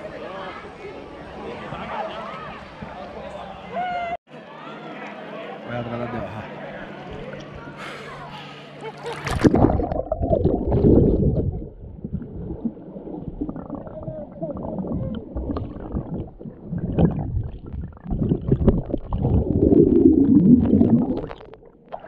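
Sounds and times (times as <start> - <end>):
underwater rumbling and gurgling: 9.3 - 22.0.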